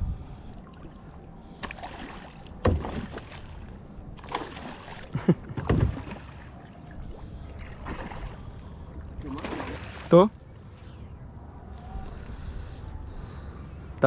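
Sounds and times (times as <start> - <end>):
water and boat noise: 0.0 - 14.0
fish splashing: 1.6 - 10.1.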